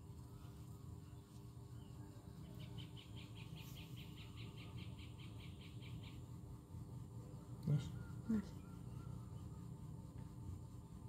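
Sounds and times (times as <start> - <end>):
low steady hum: 0.0 - 11.0
faint high chirps: 7.2 - 11.0.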